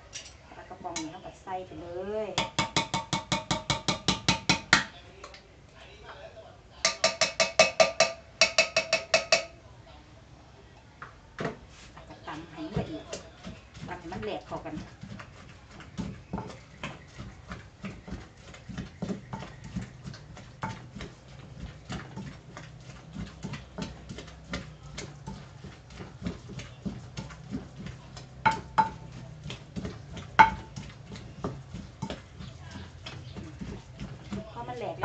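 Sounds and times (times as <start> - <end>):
pestle pounding in mortar: 2.3 - 5.0, 6.8 - 9.6, 12.6 - 35.0.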